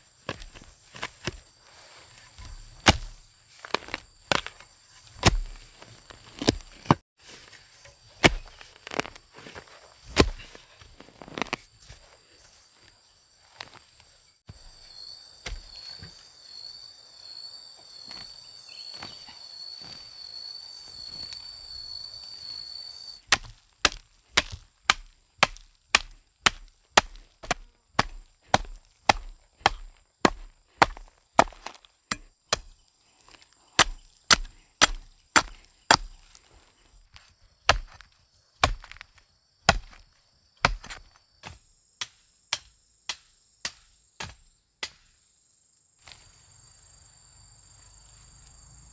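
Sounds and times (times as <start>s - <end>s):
high insect buzz: 11.5s - 23.2s, 45.3s - 48.9s.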